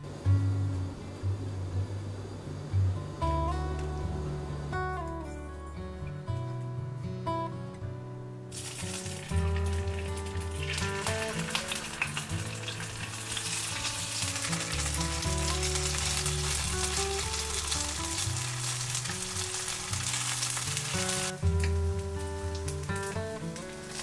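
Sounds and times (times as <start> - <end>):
soft background music: 0.0 - 24.0
food sizzling in frying oil: 8.5 - 24.0.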